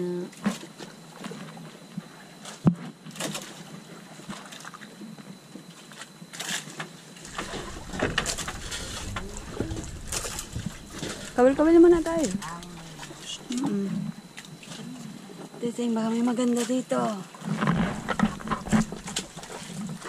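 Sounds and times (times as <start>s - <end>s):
low rumble: 7.2s - 13.6s, 17.7s - 20.0s
knocks and clicks against hull: 7.2s - 13.7s, 17.4s - 20.0s.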